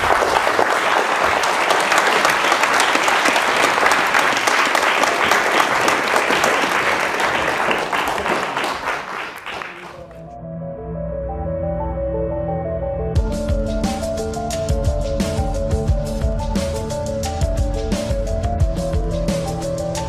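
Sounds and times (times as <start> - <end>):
audience applauding: 0.0 - 10.2.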